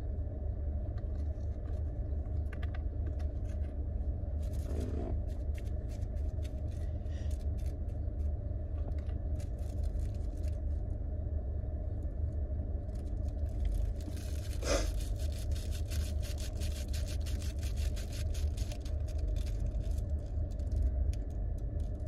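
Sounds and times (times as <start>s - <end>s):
car engine rumble in cabin: 0.0s - 22.0s
rolling paper crackling: 4.4s - 10.7s, 12.9s - 22.0s.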